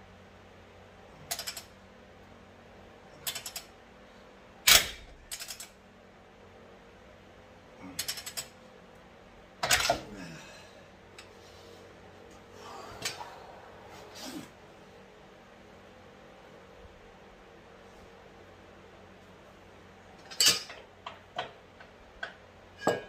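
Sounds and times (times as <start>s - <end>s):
ratchet clicking: 1.3s - 1.7s, 3.2s - 3.7s, 4.7s - 5.7s.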